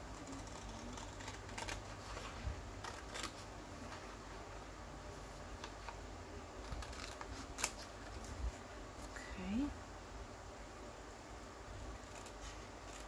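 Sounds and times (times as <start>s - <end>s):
scissors snipping paper: 0.1s - 3.5s, 11.8s - 13.0s
paper rustling: 0.1s - 4.2s.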